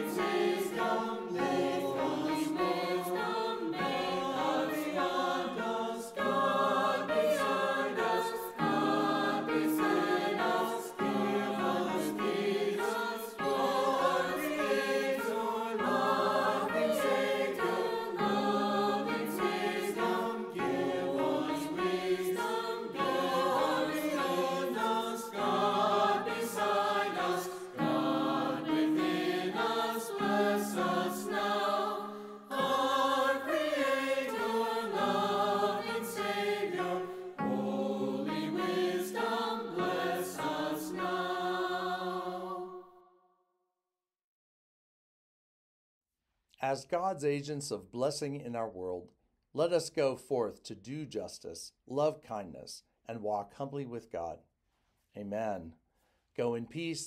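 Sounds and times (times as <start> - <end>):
group singing a hymn: 0.0 - 43.0.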